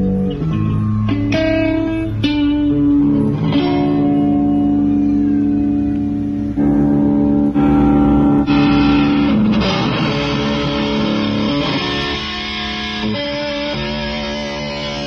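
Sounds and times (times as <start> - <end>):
electric guitar chords: 0.0 - 15.0.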